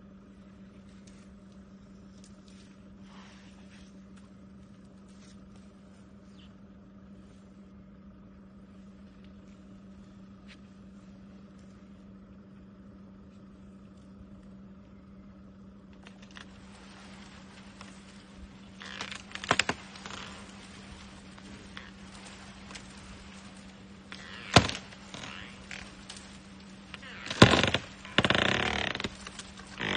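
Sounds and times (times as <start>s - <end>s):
low hum: 0.0s - 29.9s
rustling: 0.3s - 12.4s, 15.8s - 29.9s
wood and branches cracking: 15.9s - 29.9s.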